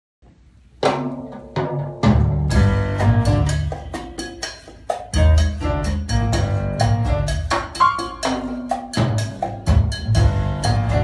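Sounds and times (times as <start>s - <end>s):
drums and percussion: 0.7s - 11.0s
deep bass: 2.2s - 3.9s, 5.2s - 7.6s, 9.6s - 11.0s.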